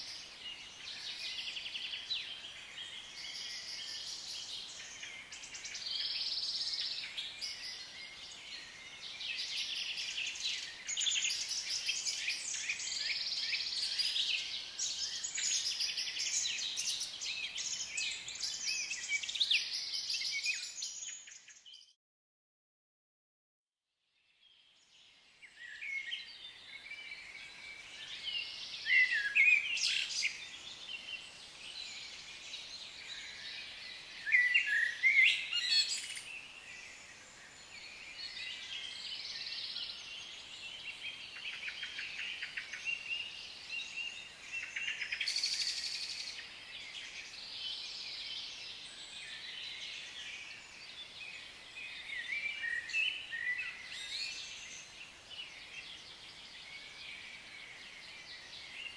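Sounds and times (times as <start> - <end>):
background hiss: 0.0 - 21.4
birds chirping and calling: 33.1 - 36.6.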